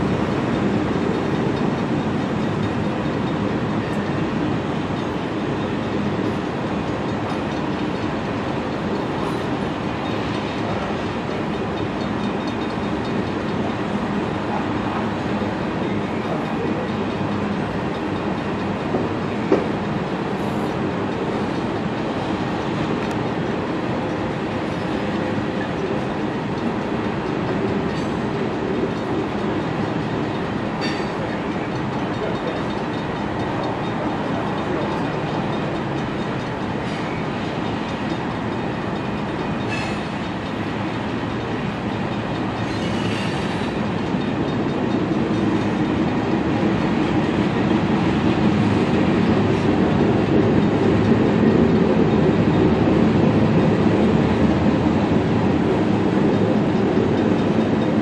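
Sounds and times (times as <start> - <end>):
train wheels rumbling on rail: 0.0 - 58.0
high wheel squeals: 42.6 - 43.8.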